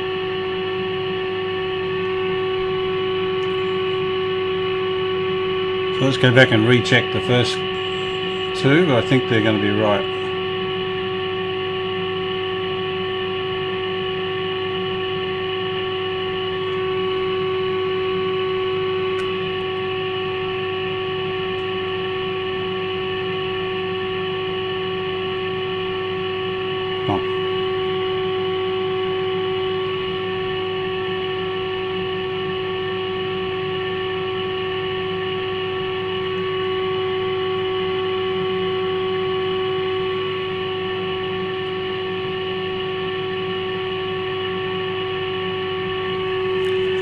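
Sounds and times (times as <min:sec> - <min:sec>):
mains hum: 0:00.0 - 0:47.0
steady test tone: 0:01.2 - 0:22.3, 0:26.5 - 0:29.2, 0:44.7 - 0:47.0.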